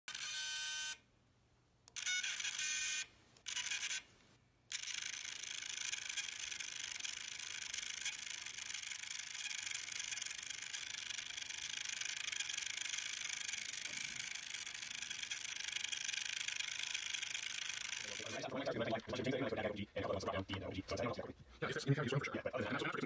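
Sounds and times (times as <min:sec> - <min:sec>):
small electric motors whirring: 0:02.0 - 0:04.0, 0:04.7 - 0:18.5.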